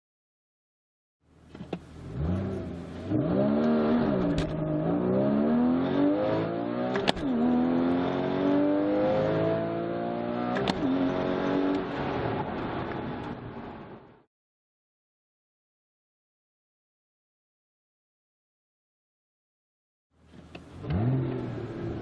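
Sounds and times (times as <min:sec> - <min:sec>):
gear shift click: 0:01.5 - 0:02.0, 0:06.9 - 0:07.4, 0:10.5 - 0:10.8, 0:20.3 - 0:21.6
car engine accelerating: 0:01.9 - 0:13.7, 0:20.6 - 0:22.0.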